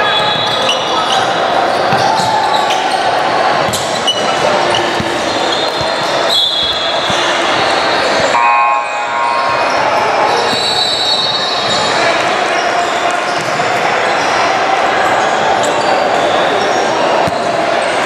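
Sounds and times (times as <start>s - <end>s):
voices echoing in hall: 0.0s - 18.0s
basketball bouncing on court: 1.7s - 2.8s, 3.6s - 8.2s, 9.6s - 12.0s, 13.3s - 13.8s, 17.2s - 17.6s.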